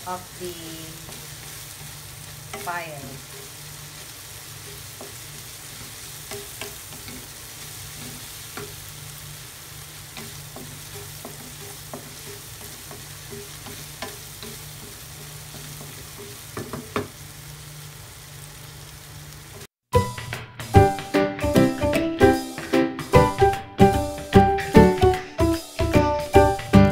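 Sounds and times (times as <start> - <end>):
meat sizzling in a frying pan: 0.0 - 21.0
wooden spatula scraping a pan: 1.0 - 17.2.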